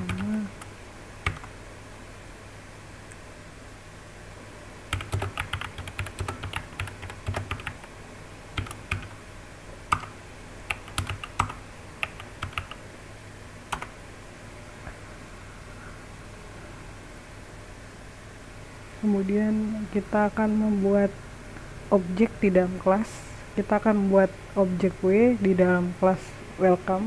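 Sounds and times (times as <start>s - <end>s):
computer keyboard typing: 0.0s - 1.6s, 4.9s - 7.9s, 8.5s - 9.2s, 9.9s - 12.8s, 13.7s - 13.9s
low background hum: 0.0s - 27.0s.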